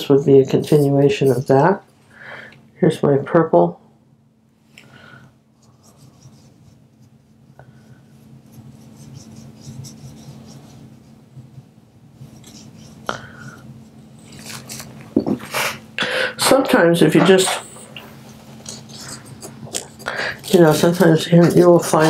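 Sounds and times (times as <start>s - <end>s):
low steady hum: 0.0s - 22.0s
paintbrush rubbing on paper: 5.6s - 13.1s, 17.3s - 22.0s.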